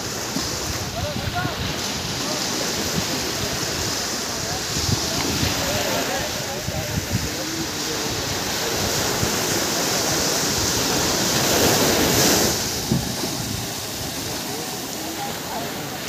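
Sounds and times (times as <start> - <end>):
small waves washing on beach: 0.0 - 16.0.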